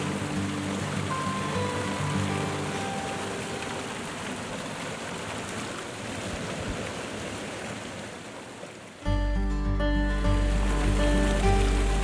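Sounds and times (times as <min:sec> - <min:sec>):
soft background music: 0:00.0 - 0:04.5, 0:09.1 - 0:12.0
waterfall rushing: 0:00.0 - 0:12.0.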